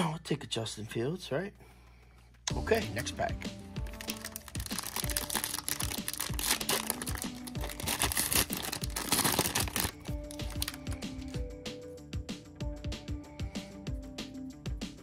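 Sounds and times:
background music: 2.4s - 15.0s
wrapper tearing: 3.8s - 11.0s
plastic wrapper crinkling: 3.8s - 11.4s.

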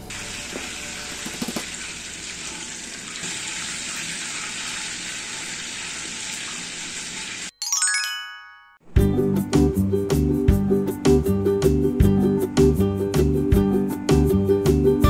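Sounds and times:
deep-frying sizzle: 0.0s - 7.5s.

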